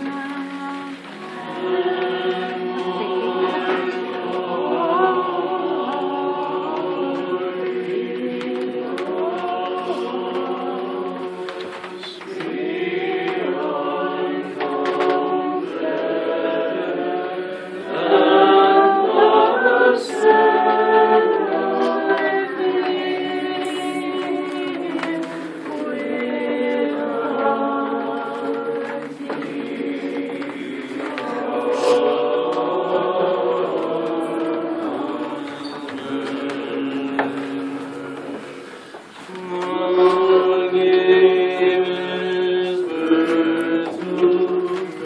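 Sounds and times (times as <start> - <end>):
choir singing long held notes: 0.0 - 45.0.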